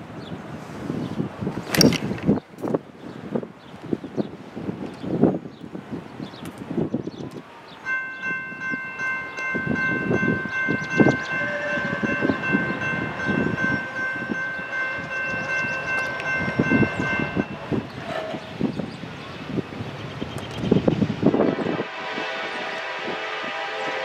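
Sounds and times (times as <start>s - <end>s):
locomotive air horn chord: 7.9s - 18.3s, 21.3s - 24.0s.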